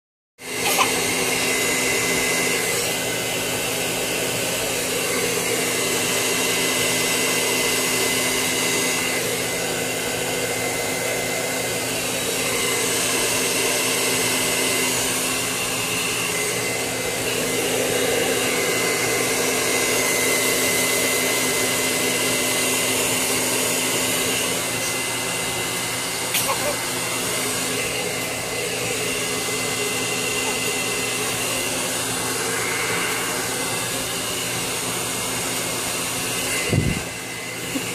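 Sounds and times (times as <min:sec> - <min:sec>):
hair dryer running: 0:00.4 - 0:37.9.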